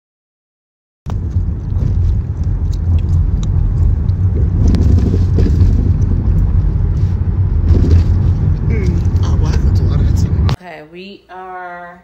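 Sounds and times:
car cabin road and engine rumble: 1.1s - 10.6s.

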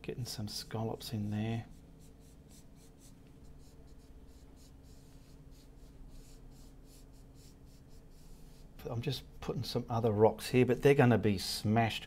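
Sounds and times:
paintbrush scrubbing on canvas: 0.5s - 8.8s.

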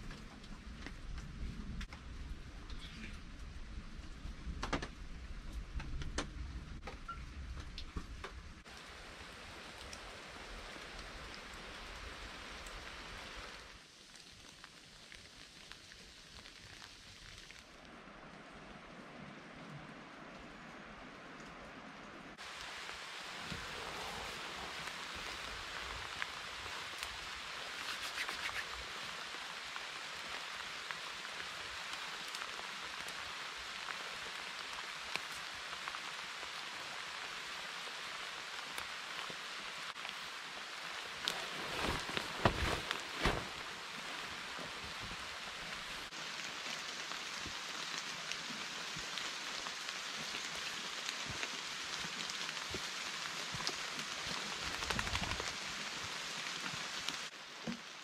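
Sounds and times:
rain falling on foliage: 0.0s - 58.0s
thumps and rustles: 41.3s - 43.7s.

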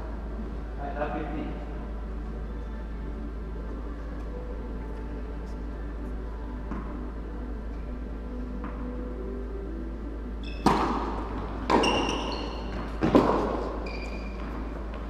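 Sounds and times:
steady low hum: 0.0s - 15.0s
tennis ball hits echoing: 10.6s - 13.8s.

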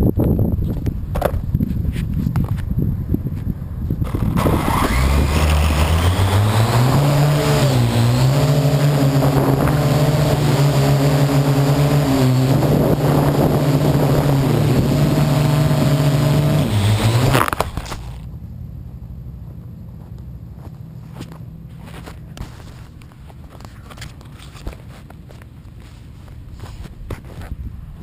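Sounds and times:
drone propellers buzzing: 4.0s - 18.2s.

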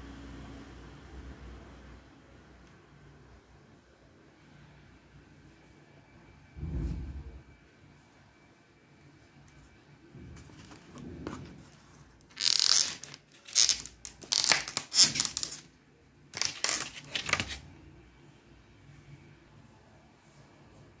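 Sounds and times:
plastic packaging crinkling: 12.2s - 15.7s, 16.3s - 17.6s.

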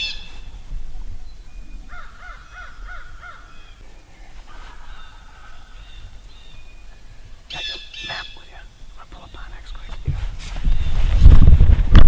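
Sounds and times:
crow cawing: 1.9s - 3.8s, 4.5s - 6.4s.

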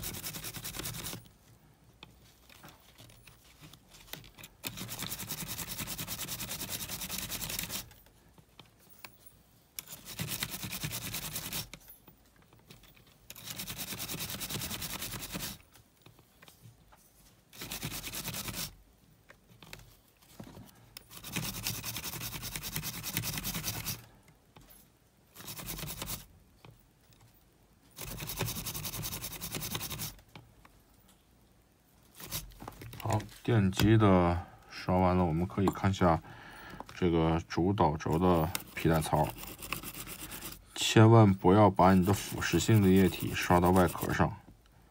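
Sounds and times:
toothbrush scrubbing small motor: 38.6s - 40.6s, 42.0s - 44.2s.

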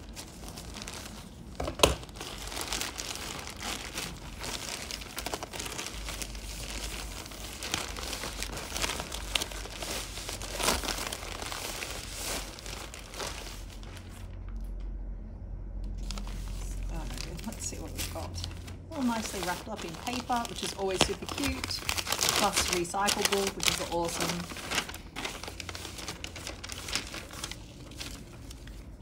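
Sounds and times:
plastic bag crinkling: 0.0s - 14.7s, 16.0s - 29.0s.

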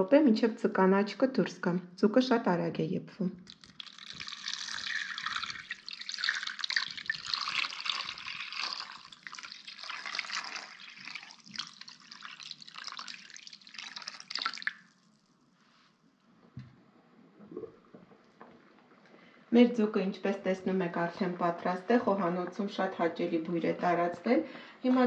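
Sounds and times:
water pouring into a pot: 3.4s - 15.3s.

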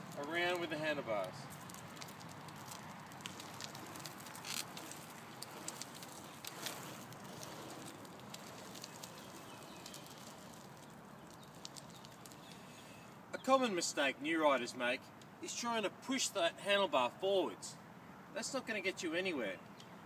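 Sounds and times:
small wheels rolling on asphalt: 0.0s - 15.6s.

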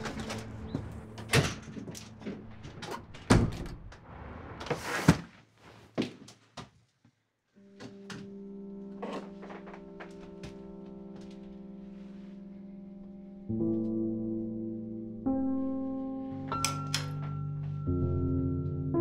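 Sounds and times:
steady music: 0.0s - 3.2s
door handle and latch clicks: 16.5s - 17.4s.

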